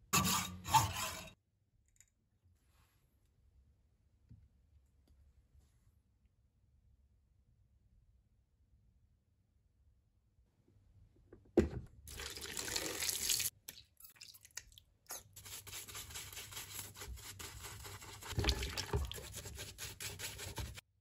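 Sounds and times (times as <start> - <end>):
sponge scrubbing metal tube: 15.1 - 20.9
water splashing in plastic tub: 18.3 - 19.2.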